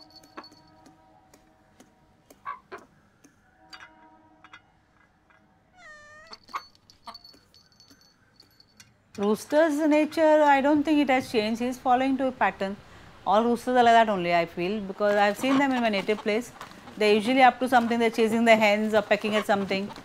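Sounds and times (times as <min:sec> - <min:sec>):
cat meowing: 0:05.7 - 0:06.5.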